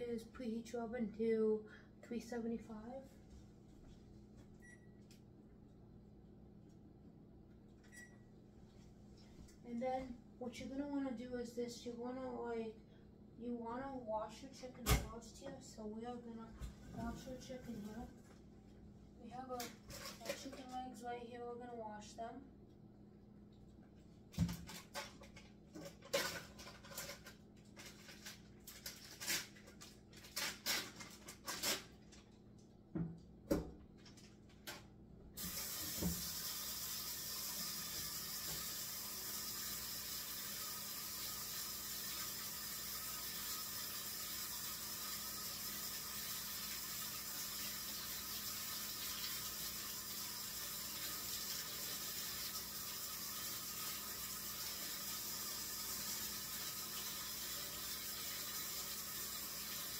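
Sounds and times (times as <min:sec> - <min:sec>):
tap water running into sink: 0:35.4 - 0:59.9.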